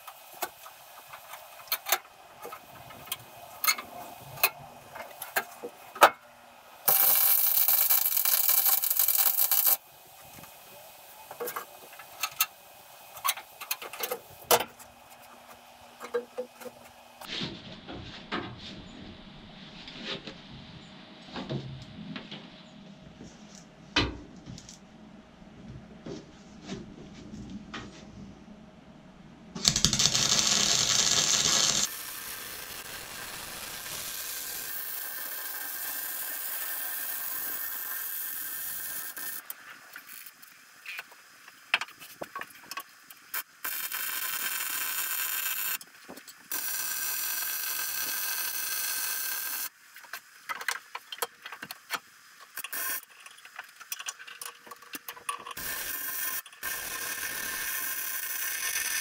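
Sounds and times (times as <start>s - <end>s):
arc welding sizzle: 0.0s - 6.2s, 6.8s - 17.3s, 29.6s - 50.5s, 51.6s - 53.9s, 55.5s - 59.0s
loud burst of noise: 29.6s - 34.9s.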